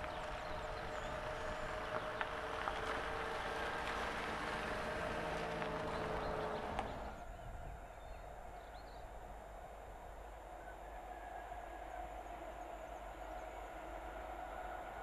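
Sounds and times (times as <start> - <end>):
van driving past: 0.0 - 7.3
steady outdoor hiss: 0.0 - 15.0.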